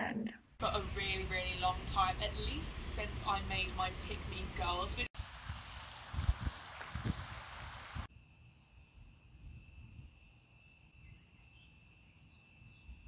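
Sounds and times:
insects droning: 0:00.6 - 0:13.0
wind on microphone: 0:05.0 - 0:08.1.

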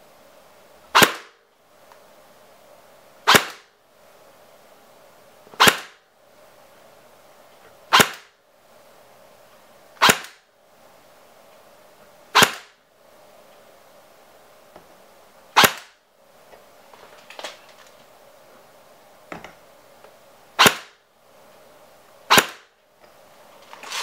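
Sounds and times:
airsoft gun firing single shots: 0:00.9 - 0:01.4, 0:03.2 - 0:03.7, 0:05.6 - 0:06.0, 0:07.9 - 0:08.3, 0:10.0 - 0:10.4, 0:12.3 - 0:12.8, 0:15.6 - 0:16.0, 0:20.6 - 0:21.0, 0:22.3 - 0:22.7.

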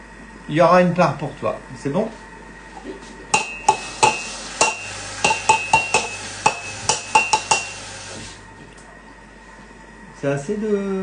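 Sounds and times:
low steady hum: 0:00.0 - 0:11.0
utensil tapping ceramic mug: 0:03.4 - 0:07.8.

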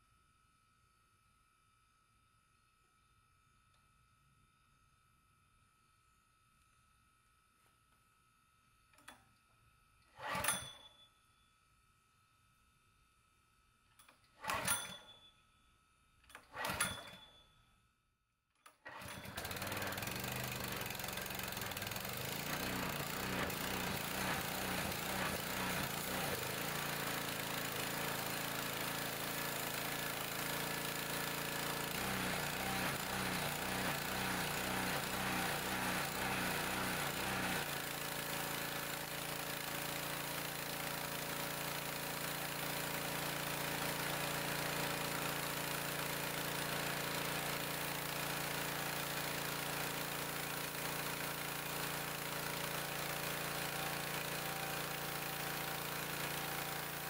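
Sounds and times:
small gasoline engine running: 0:14.4 - 0:15.1, 0:16.4 - 0:17.2, 0:18.8 - 0:57.0.

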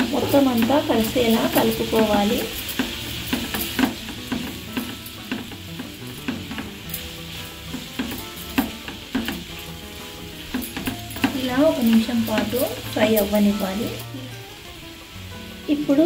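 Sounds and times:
spatula scraping and tapping pan: 0:00.0 - 0:13.8
onions sizzling in oil: 0:00.0 - 0:16.0.

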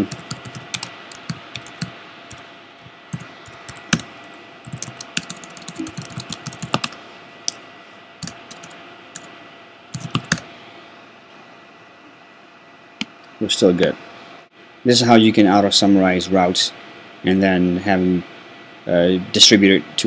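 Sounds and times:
typing on computer keyboard: 0:00.0 - 0:01.9, 0:04.7 - 0:07.0, 0:08.2 - 0:09.3, 0:10.0 - 0:10.4.

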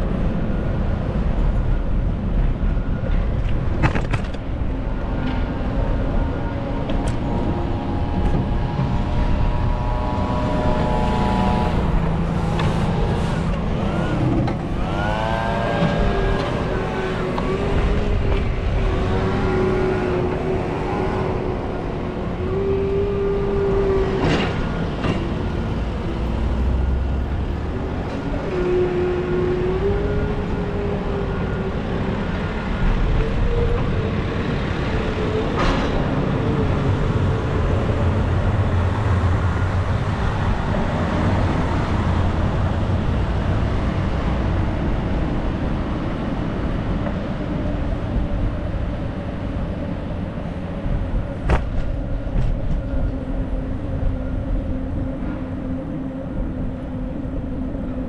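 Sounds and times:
low rumble: 0:00.0 - 0:28.4
traffic passing: 0:00.0 - 0:58.0
pitched engine tone: 0:07.2 - 0:32.9.

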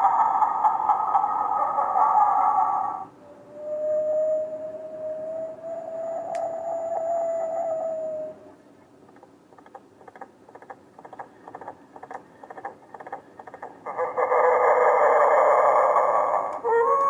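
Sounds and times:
faint scratchy clicks: 0:09.1 - 0:13.7.

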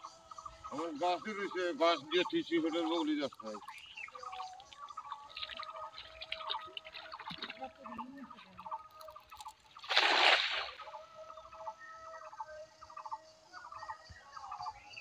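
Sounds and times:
bird calling in pulsed phrases: 0:00.0 - 0:15.0
net splashing onto water: 0:03.6 - 0:10.9.

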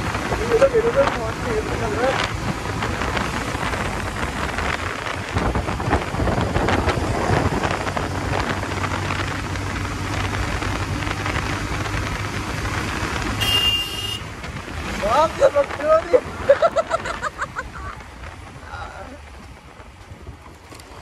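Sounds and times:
motorcycle engine running: 0:00.0 - 0:21.0
wind rushing over microphone: 0:00.0 - 0:21.0
horn beeping: 0:13.4 - 0:14.3.

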